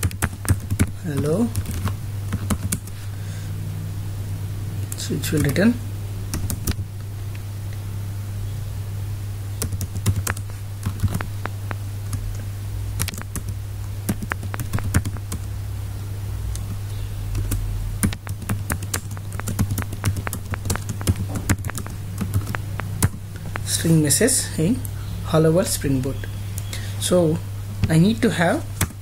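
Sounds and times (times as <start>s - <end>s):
computer keyboard typing: 0.0s - 2.9s, 6.3s - 6.8s, 9.6s - 12.2s, 13.0s - 15.5s, 17.3s - 23.7s
steady low hum: 0.0s - 29.0s.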